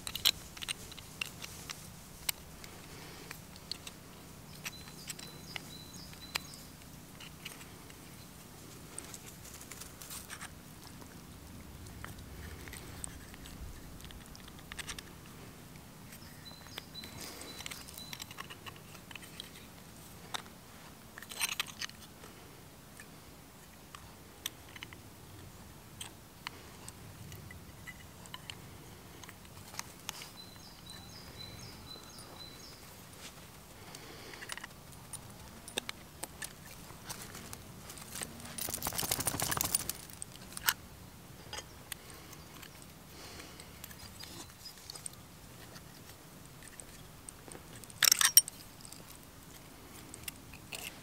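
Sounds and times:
metal clicks and scrapes: 0.0 - 4.0, 34.3 - 40.8, 47.7 - 51.0.

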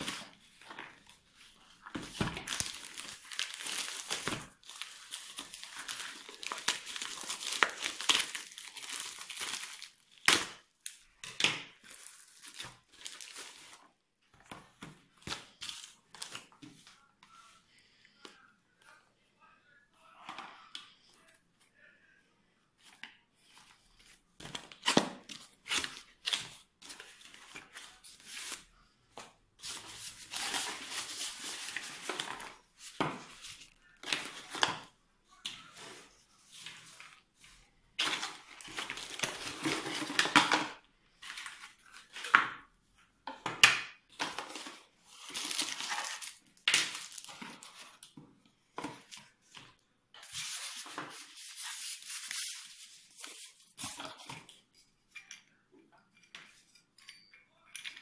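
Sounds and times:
plastic and cardboard rustling: 0.0 - 10.2, 23.6 - 34.9, 35.6 - 42.4.

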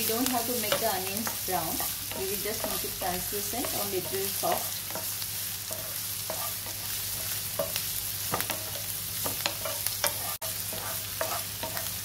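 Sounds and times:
onions sizzling in hot oil: 0.0 - 12.0
wooden spatula scraping pan: 5.7 - 7.8, 8.4 - 11.9.

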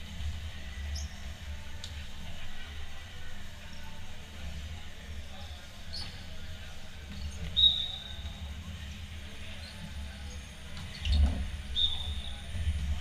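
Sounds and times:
sports shoes squeaking on court: 7.1 - 8.4.

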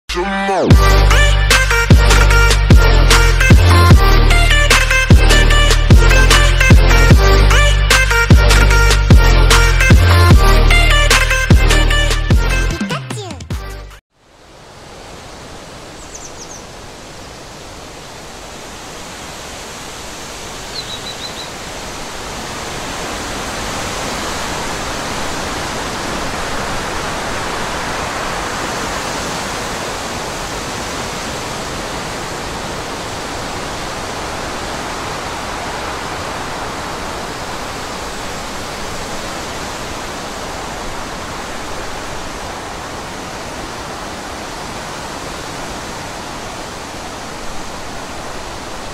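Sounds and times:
heavy rain: 0.7 - 12.0, 14.2 - 48.9
storm wind: 14.3 - 48.9.

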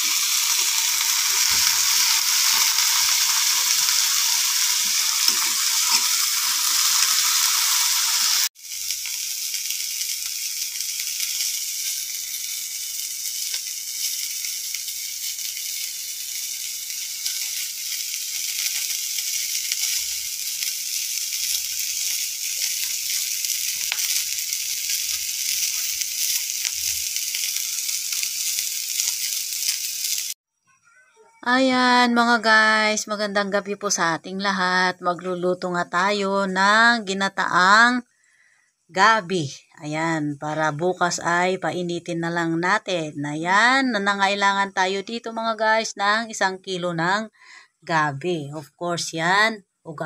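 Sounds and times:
crabs frying in oil: 0.0 - 30.4.

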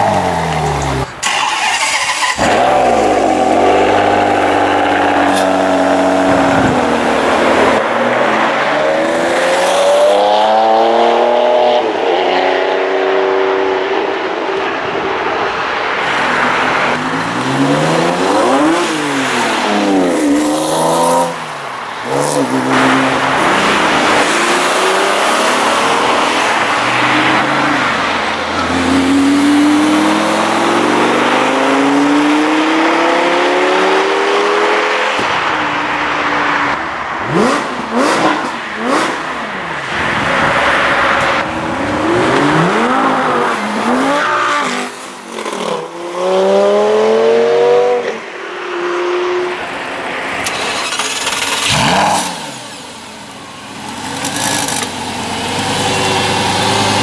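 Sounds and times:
sports car engines accelerating: 0.0 - 57.0
engine cracks: 1.2 - 3.2, 50.4 - 52.4.

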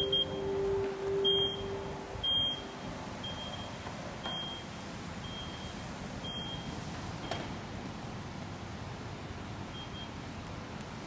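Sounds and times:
low hum: 0.0 - 3.9
high-pitched warning beeps: 0.0 - 7.4, 9.7 - 10.2.

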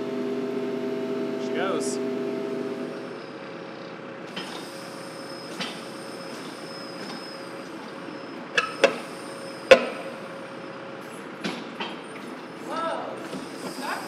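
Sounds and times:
steady hum with high whine: 0.0 - 3.3
knocks and clanks from wheel work: 4.3 - 4.7, 5.5 - 7.4, 8.5 - 10.2, 11.0 - 12.6.

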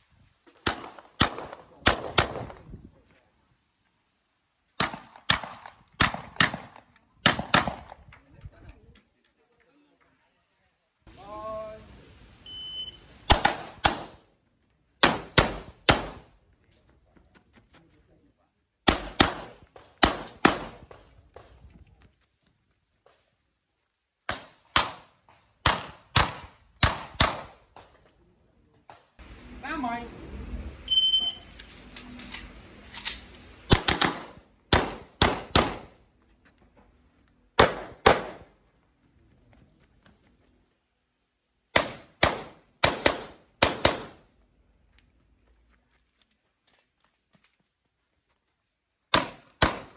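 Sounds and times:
shot timer beep: 12.5 - 13.0, 30.9 - 31.5
carbine gunshots: 18.9 - 21.0, 33.7 - 36.0, 37.6 - 38.5, 41.7 - 44.2.

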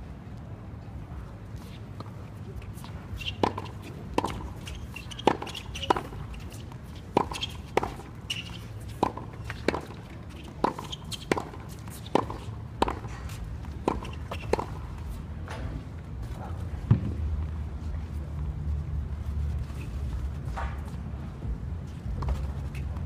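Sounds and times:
tennis ball hit by racquets: 3.2 - 14.9.

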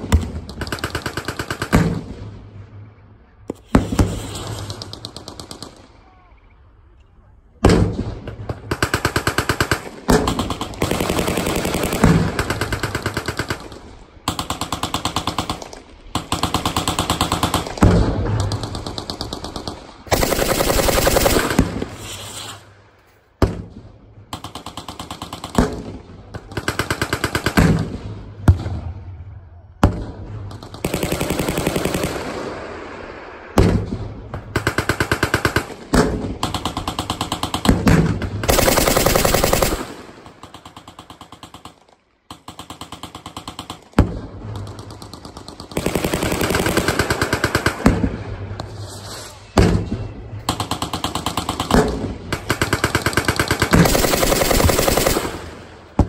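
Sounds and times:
machine gun bursts: 20.1 - 21.6, 38.5 - 39.9, 52.5 - 55.5.

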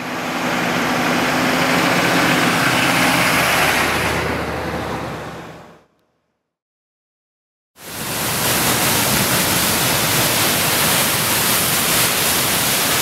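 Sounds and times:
whitewater rushing over rocks: 7.8 - 13.0.

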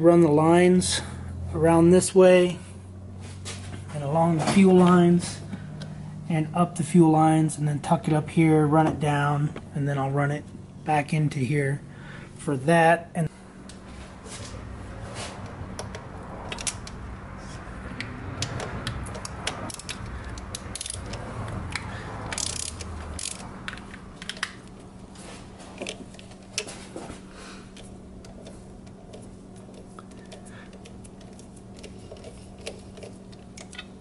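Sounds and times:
socket ratchet clicking: 18.0 - 24.6.

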